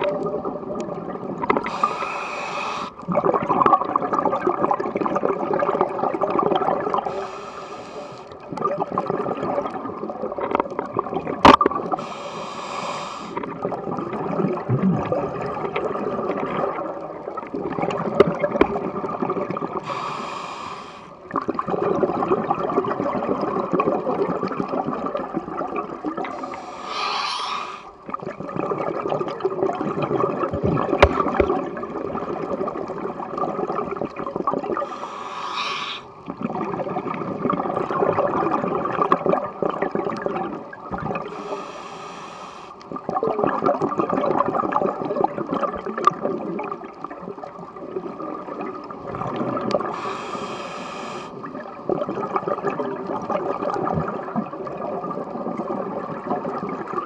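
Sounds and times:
bubbling exhale underwater: 0.0s - 7.4s, 8.4s - 20.4s, 21.2s - 42.1s, 42.8s - 57.0s
diver inhaling through regulator: 1.6s - 3.0s, 7.0s - 8.4s, 11.9s - 13.4s, 19.8s - 21.2s, 26.2s - 28.0s, 34.8s - 36.2s, 41.2s - 42.8s, 49.9s - 51.5s.

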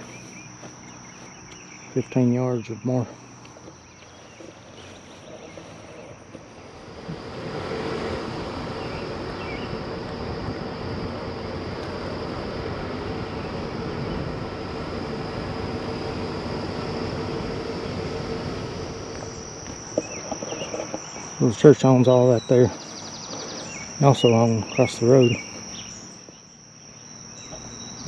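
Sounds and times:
crickets chirping: 0.0s - 28.0s
car engine and road noise: 3.2s - 21.8s.

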